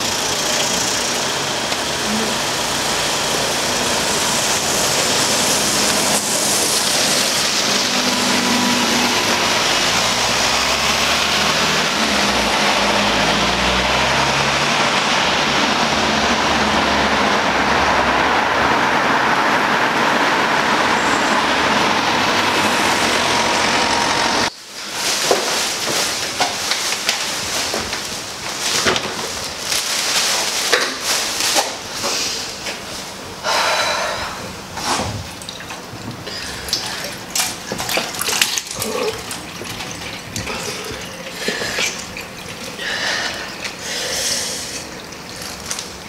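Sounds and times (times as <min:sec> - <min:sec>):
bus diesel engine running: 0:00.0 - 0:26.5
street traffic noise: 0:00.0 - 0:46.0.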